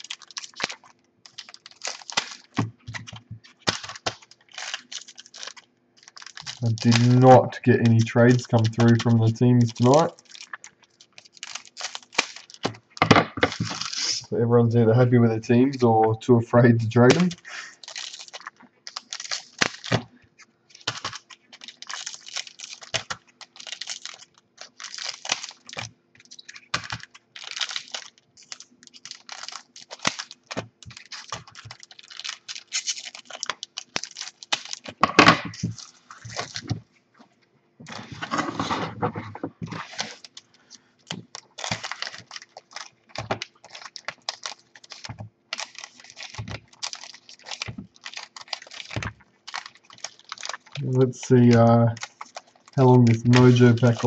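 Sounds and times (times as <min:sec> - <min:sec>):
foil wrappers crinkling: 0:00.0 - 0:14.3, 0:16.5 - 0:36.9, 0:37.8 - 0:54.0
scissors snipping foil: 0:20.8 - 0:35.0.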